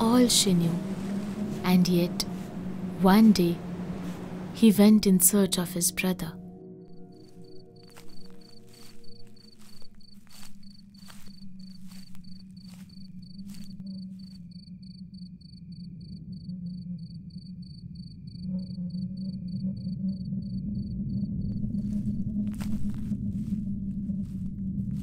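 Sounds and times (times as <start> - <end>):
footsteps on dry forest ground: 0.0 - 4.6, 6.9 - 14.4, 21.6 - 25.0
low music drone: 0.0 - 25.0
cricket chirping: 6.4 - 23.6.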